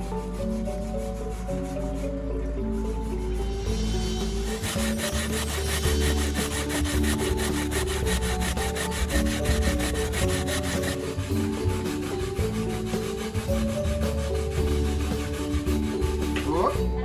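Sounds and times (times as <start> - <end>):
coconut rasping on metal grater: 3.2 - 16.8.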